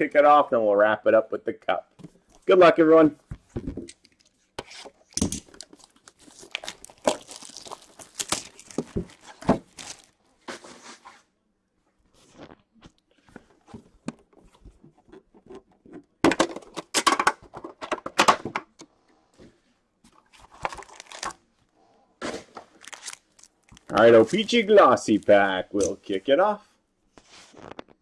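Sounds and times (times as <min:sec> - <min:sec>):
cellophane tearing and crinkling: 0:05.0 - 0:10.2, 0:20.5 - 0:21.4, 0:22.7 - 0:25.4
cardboard box being opened: 0:05.5 - 0:10.1.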